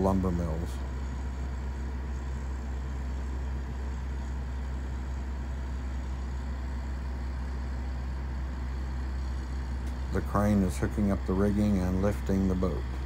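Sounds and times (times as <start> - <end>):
crane diesel engine idling: 0.0 - 13.0.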